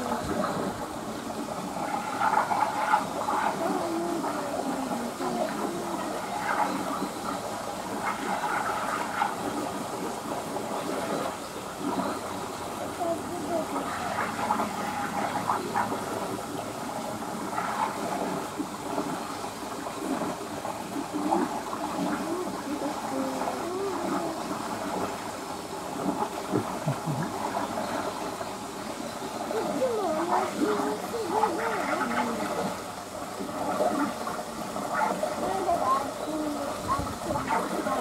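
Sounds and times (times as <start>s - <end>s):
steady background hiss: 0.0s - 38.0s
distant people talking: 26.6s - 27.6s.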